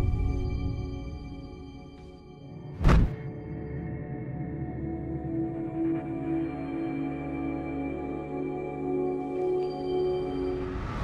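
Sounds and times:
eerie film score music: 0.0s - 11.0s
loud hit with deep thud: 2.8s - 3.2s.

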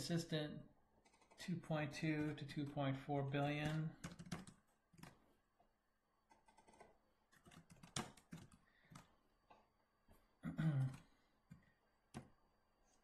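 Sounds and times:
keyboard typing: 1.0s - 1.4s, 3.4s - 5.2s, 6.3s - 9.1s.

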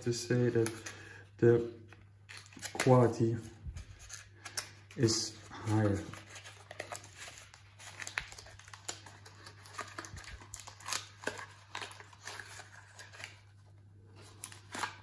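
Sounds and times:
packaging crinkling: 3.8s - 15.0s.

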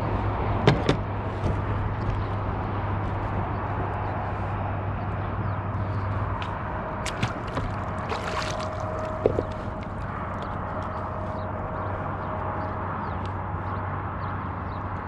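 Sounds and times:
steady low rumble: 0.0s - 15.0s
water lapping against kayak hull: 7.0s - 10.1s.

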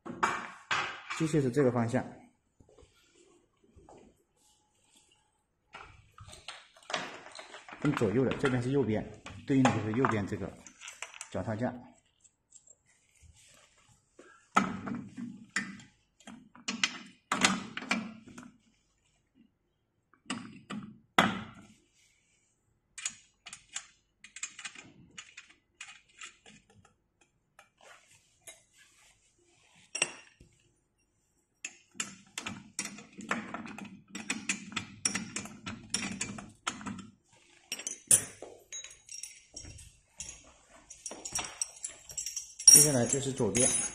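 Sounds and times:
metal parts clicking and rattling: 6.2s - 11.6s, 31.7s - 43.9s.

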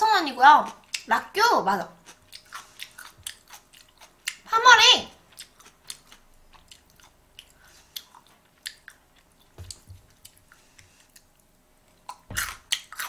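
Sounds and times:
person chewing food: 0.6s - 1.1s, 2.0s - 4.5s, 5.2s - 13.0s
wet mouth clicks and smacks: 8.0s - 9.0s.

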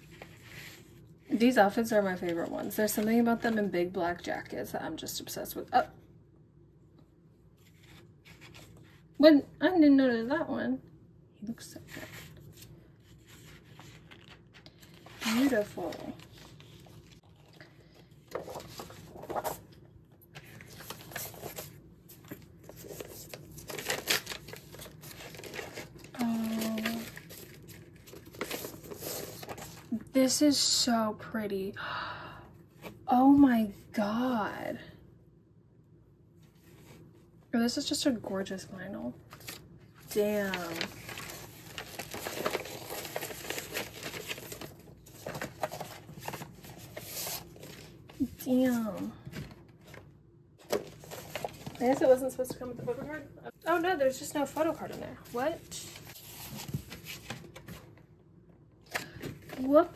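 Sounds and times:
paper and packaging rustling: 11.7s - 30.0s, 39.3s - 58.0s.

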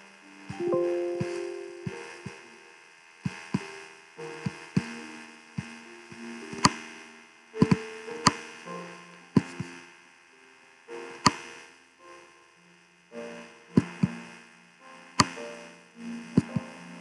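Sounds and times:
soft held tones: 0.3s - 2.8s.

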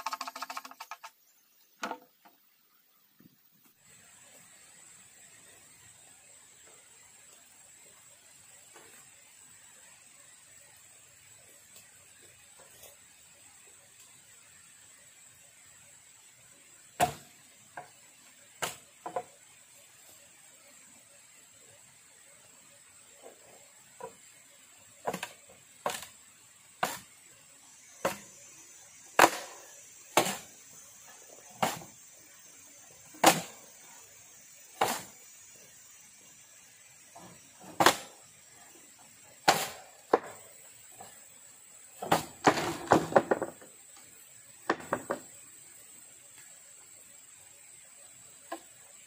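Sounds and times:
hand tool striking bamboo: 26.8s - 27.1s, 29.2s - 29.5s, 30.2s - 30.4s, 33.2s - 33.5s, 34.8s - 35.1s, 39.4s - 40.3s.

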